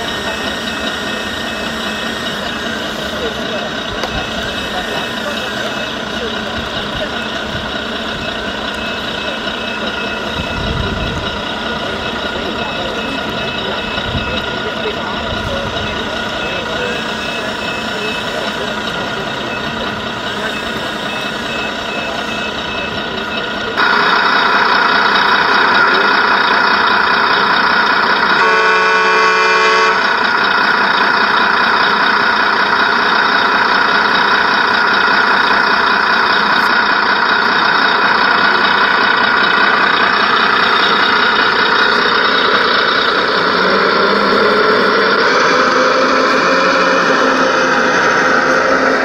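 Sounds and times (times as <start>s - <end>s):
model truck running: 0.0s - 49.0s
horn blast: 28.4s - 30.2s.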